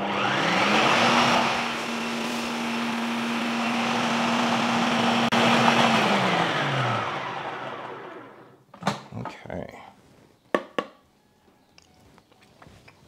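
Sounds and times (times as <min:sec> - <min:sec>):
food processor motor running: 0:00.0 - 0:08.5.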